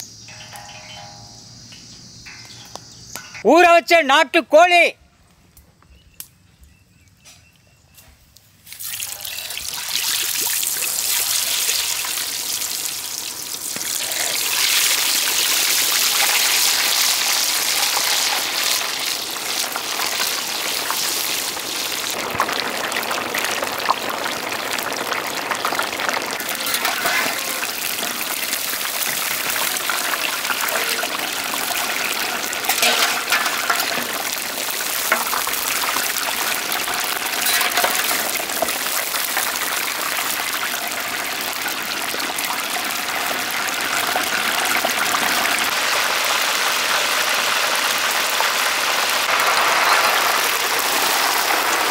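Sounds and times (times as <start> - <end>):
chicken deep-frying in oil: 8.4 - 51.9.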